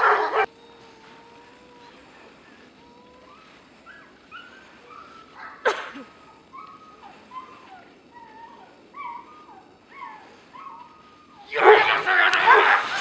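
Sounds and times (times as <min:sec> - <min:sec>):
dog whining and whimpering: 0:06.5 - 0:11.6.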